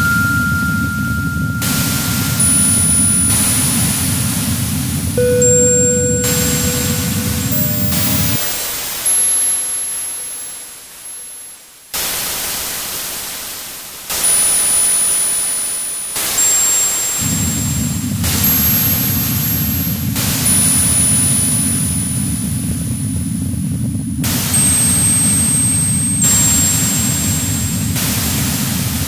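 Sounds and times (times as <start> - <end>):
thin high whistling tones: 0.0 - 4.0, 5.2 - 8.6
dense low rumbling noise: 0.0 - 8.4
static hiss bursts: 12.0 - 14.8.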